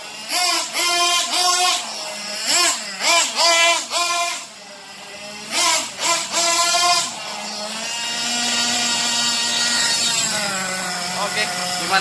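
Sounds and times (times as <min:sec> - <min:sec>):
model car engine revving: 0:00.0 - 0:12.0.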